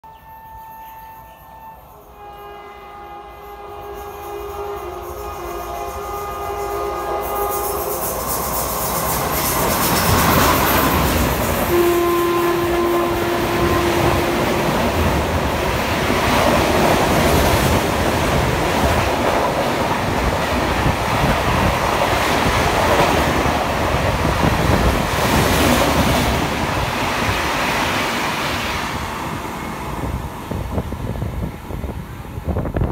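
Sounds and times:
train horn chord: 0.0 - 8.3, 11.6 - 15.3
steady train horn note: 0.0 - 8.5, 11.6 - 15.6
train wheels clattering on rails: 4.1 - 31.2.

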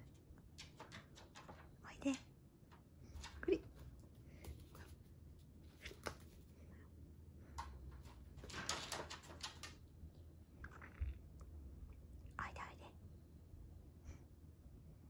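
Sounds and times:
paws scrabbling on wooden floor: 0.4 - 6.5.

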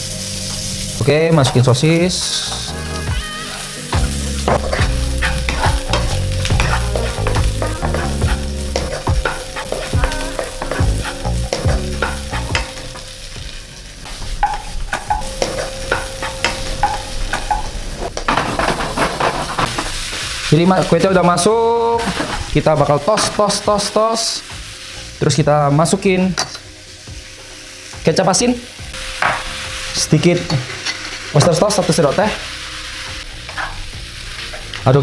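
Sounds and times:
food sizzling in hot oil: 0.0 - 35.0
wooden spatula scraping a wok: 0.4 - 12.8, 14.2 - 23.6, 30.3 - 34.8.

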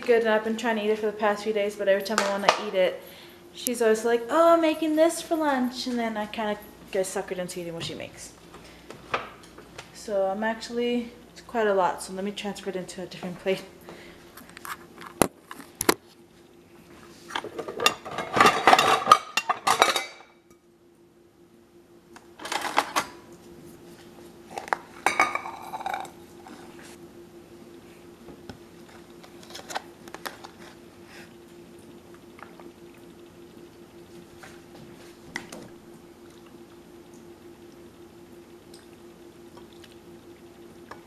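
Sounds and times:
faint steady hum: 0.0 - 41.0
dishes clattering: 17.5 - 20.2, 25.0 - 26.1.

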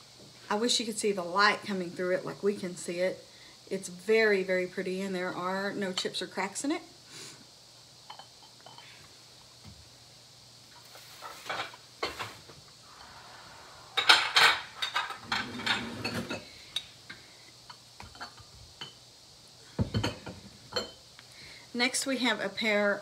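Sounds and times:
glass and ceramic clinking: 19.8 - 21.0.

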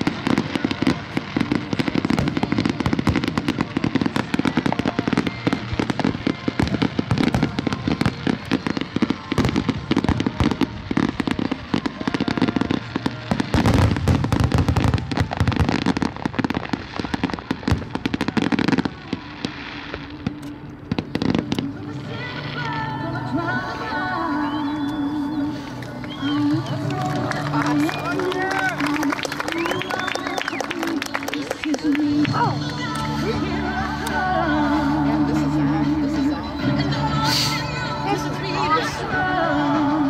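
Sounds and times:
fireworks popping and banging: 0.0 - 22.8, 25.6 - 34.4.

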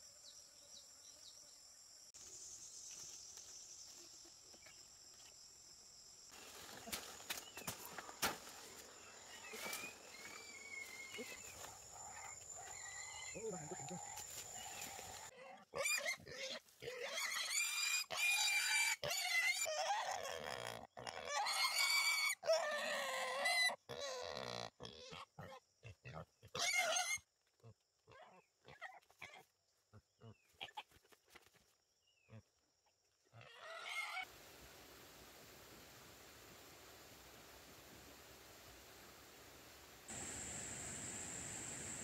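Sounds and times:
wild boar squealing: 10.1 - 25.6, 26.4 - 27.2, 33.4 - 34.2.

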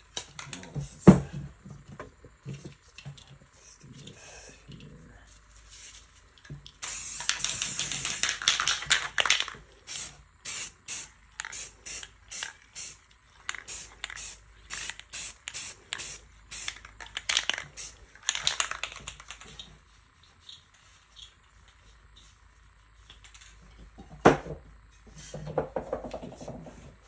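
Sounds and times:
spray can hissing: 6.8 - 16.9, 17.6 - 18.0.

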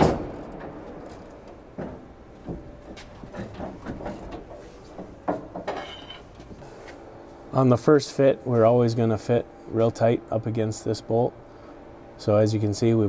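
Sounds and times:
ringing metal clank: 5.7 - 6.3.

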